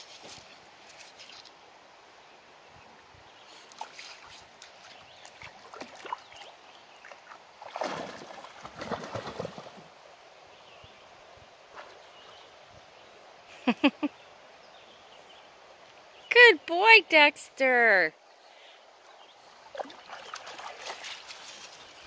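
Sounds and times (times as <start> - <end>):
dog splashing in river: 3.6 - 10.0, 11.6 - 12.5, 19.6 - 22.0.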